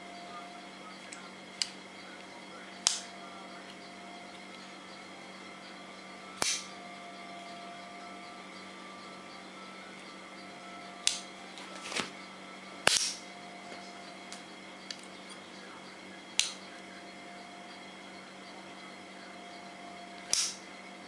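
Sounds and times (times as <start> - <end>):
steady low hum: 0.0 - 21.0
pocket knife metallic clicks: 20.3 - 20.6.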